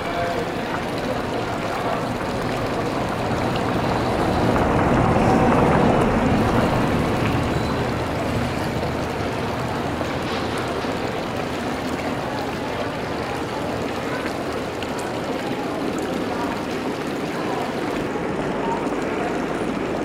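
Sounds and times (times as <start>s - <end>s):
traffic and street noise: 0.0s - 20.0s
bus rumbling past: 2.1s - 12.2s.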